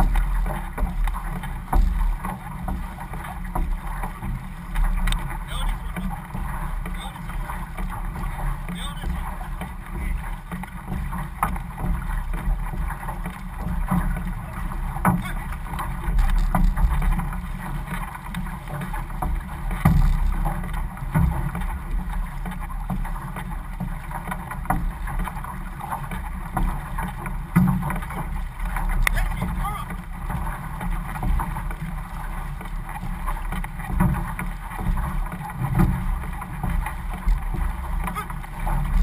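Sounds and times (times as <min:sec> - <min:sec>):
water rushing along canoe hull: 0:00.0 - 0:39.0.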